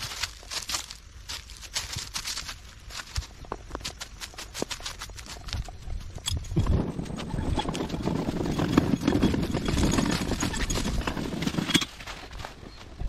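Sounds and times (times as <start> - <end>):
footsteps crunching through dry leaves: 0.0 - 6.2
microphone handling rumble: 5.6 - 11.9.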